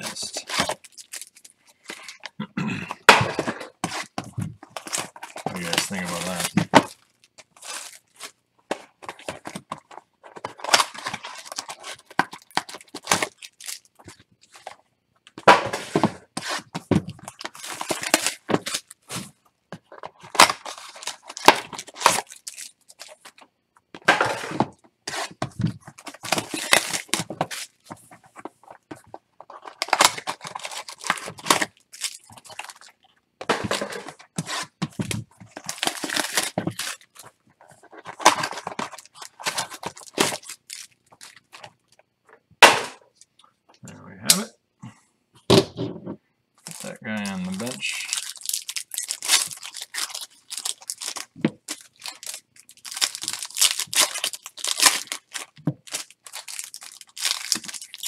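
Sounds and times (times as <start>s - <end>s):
card pack wrappers tearing: 0.0s - 2.2s, 3.8s - 8.4s, 10.3s - 14.8s, 16.5s - 19.2s, 20.1s - 23.4s, 25.1s - 27.9s, 29.5s - 33.0s, 33.8s - 41.7s, 46.6s - 58.0s.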